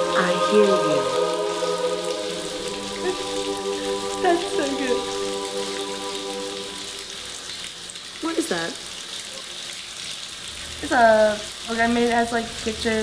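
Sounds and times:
held musical chord: 0.0s - 7.4s
shower running: 0.0s - 13.0s
woman sobbing: 2.9s - 5.1s.

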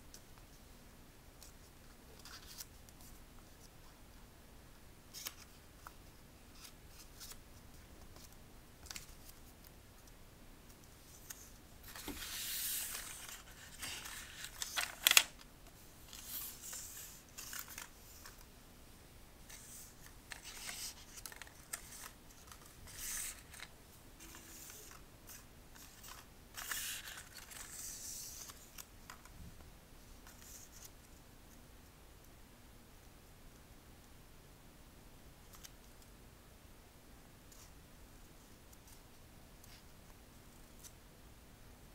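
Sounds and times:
paper rustling and crinkling: 11.1s - 15.4s, 16.0s - 18.5s, 19.5s - 29.3s.

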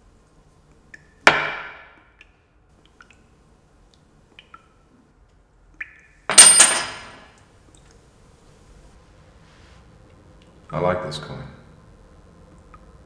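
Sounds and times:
coin clinking on a tabletop: 6.3s - 7.2s.

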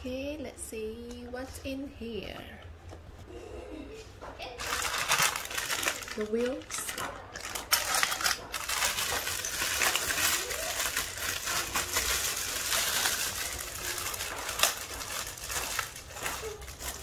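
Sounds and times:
plastic bag crinkling: 4.5s - 17.0s
metal parts clinking: 4.8s - 13.6s.

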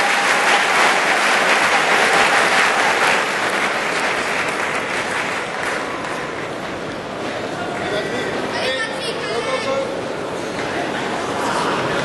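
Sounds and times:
crowd applauding: 0.0s - 6.9s.

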